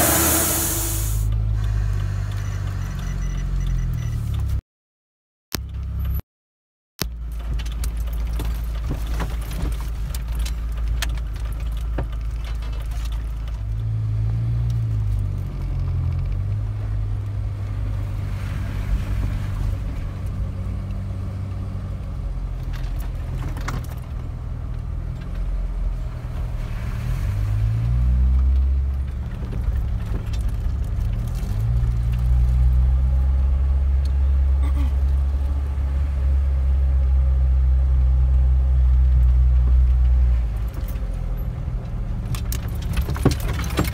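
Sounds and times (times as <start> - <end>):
car engine revving: 0.0 - 1.3
body knocks and rattles: 7.4 - 13.5, 42.2 - 43.9.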